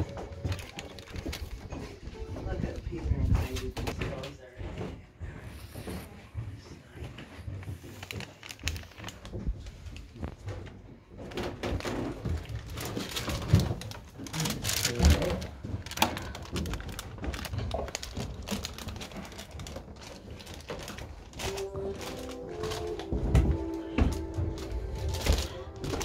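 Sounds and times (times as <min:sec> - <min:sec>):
music: 0:00.0 - 0:03.9, 0:21.3 - 0:26.0
footsteps on wooden steps: 0:00.0 - 0:12.6, 0:15.4 - 0:26.0.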